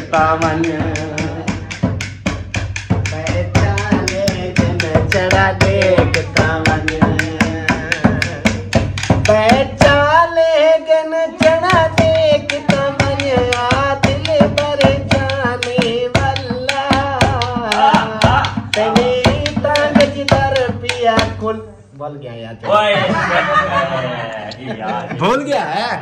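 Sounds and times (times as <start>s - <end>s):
hand drum beating: 0.0s - 10.3s, 11.4s - 21.5s
man singing long held notes: 3.0s - 21.6s.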